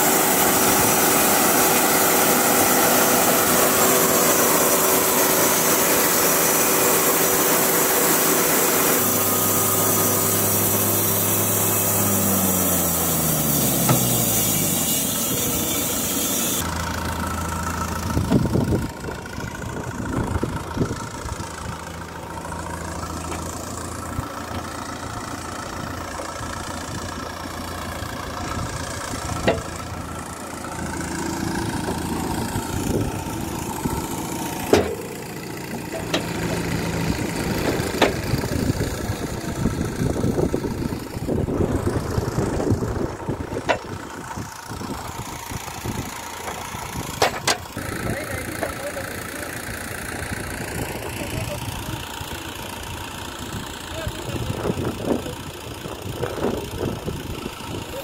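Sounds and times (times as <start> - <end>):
bandsaw blade hissing: 0.0 - 16.7
falling whine of saw drive: 0.0 - 51.1
engine idling: 0.0 - 58.0.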